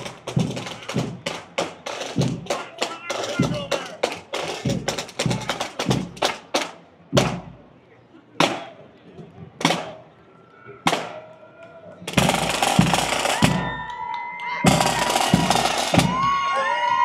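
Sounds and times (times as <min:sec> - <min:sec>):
drum beat: 0:00.0 - 0:07.5, 0:12.1 - 0:13.8, 0:14.6 - 0:16.4
marching band playing: 0:00.0 - 0:07.6, 0:09.6 - 0:10.0, 0:12.1 - 0:13.8, 0:14.6 - 0:16.4
snare drum roll: 0:12.1 - 0:13.8, 0:14.7 - 0:16.4.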